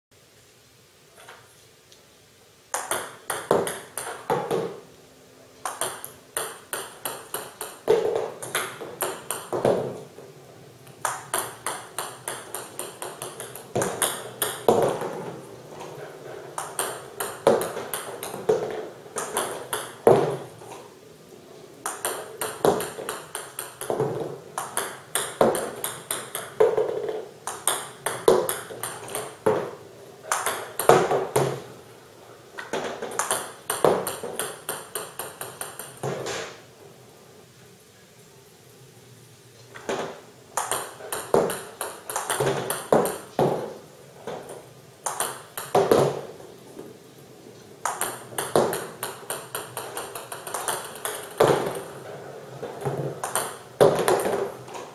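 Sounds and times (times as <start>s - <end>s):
ball bouncing on table: 2.8s - 4.8s, 5.6s - 10.0s, 11.0s - 15.9s, 16.6s - 20.5s, 21.9s - 31.6s, 32.6s - 36.6s, 39.8s - 46.3s, 47.8s - 52.0s, 52.8s - 54.8s
paddle striking ball: 2.8s - 4.8s, 11.0s - 15.3s, 16.6s - 20.5s, 21.9s - 31.6s, 32.6s - 36.6s, 45.1s - 46.3s, 47.8s - 51.9s
balls bouncing and rolling: 2.8s - 4.9s, 5.6s - 21.0s, 21.8s - 31.8s, 32.5s - 36.6s, 39.7s - 54.9s.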